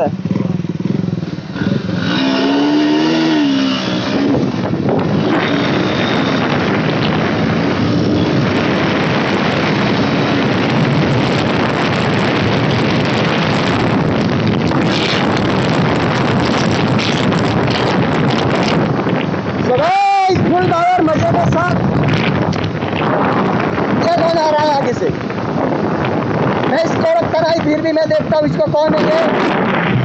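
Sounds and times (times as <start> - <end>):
motorcycle engine revving: 0.0 - 19.7
wind on microphone: 0.0 - 30.0.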